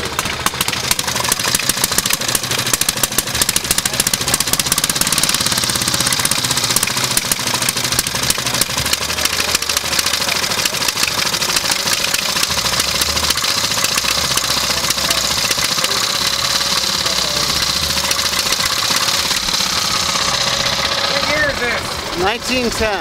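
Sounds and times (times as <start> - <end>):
single-cylinder motorcycle engine running: 0.0 - 23.0.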